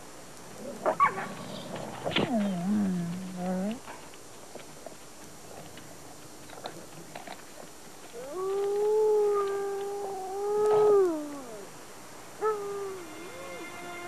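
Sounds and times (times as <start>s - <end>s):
faint clicks: 0.3s - 11.6s
wolf howling: 8.1s - 11.8s, 12.4s - 14.0s.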